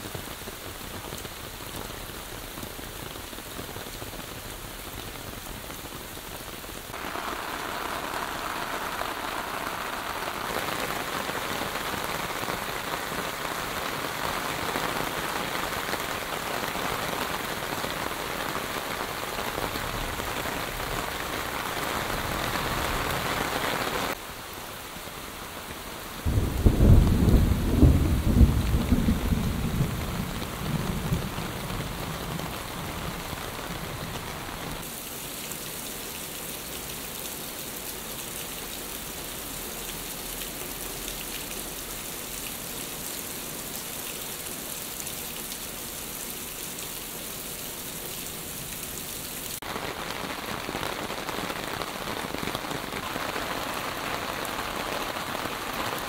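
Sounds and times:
heavy rain: 0:00.0 - 0:56.0
rain on standing water: 0:00.0 - 0:56.0
thunder rumbling: 0:26.2 - 0:34.0.

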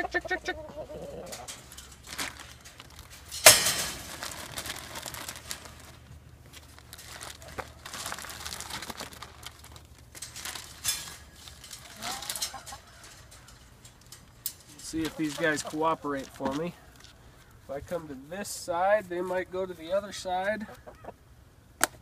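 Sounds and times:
plastic bag crinkling: 0:01.6 - 0:16.6.

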